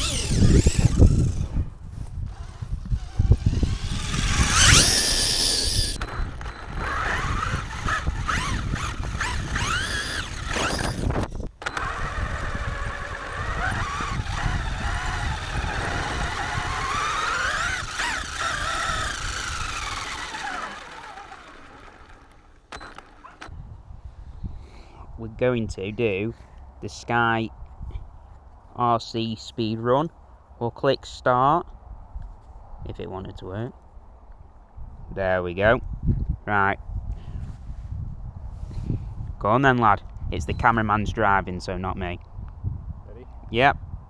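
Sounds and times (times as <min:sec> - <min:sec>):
electric motor whining: 0:00.0 - 0:01.6, 0:02.2 - 0:23.5.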